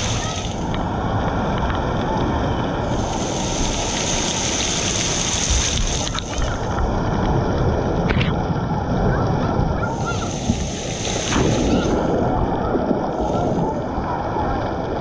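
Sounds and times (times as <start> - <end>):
water spraying and pouring: 0.0 - 0.8, 2.9 - 6.9, 9.8 - 12.4, 13.0 - 14.0.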